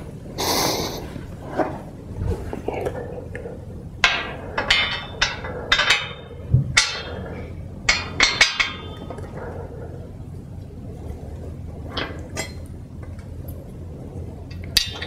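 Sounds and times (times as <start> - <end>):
metal bar clanking on rails: 4.0 - 10.0, 14.5 - 15.0.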